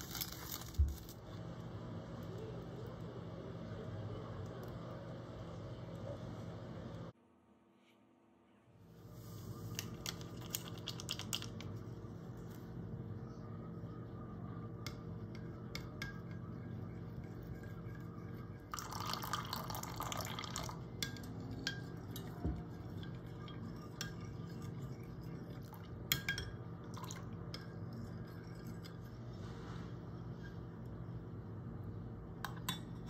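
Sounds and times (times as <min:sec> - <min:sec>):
steady low hum: 0:00.0 - 0:33.0
hot water pouring into glass bowl: 0:18.7 - 0:22.3, 0:26.9 - 0:27.4.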